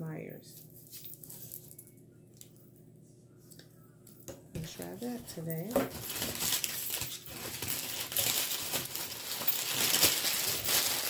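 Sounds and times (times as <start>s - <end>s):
packing paper crinkling: 4.6s - 11.0s.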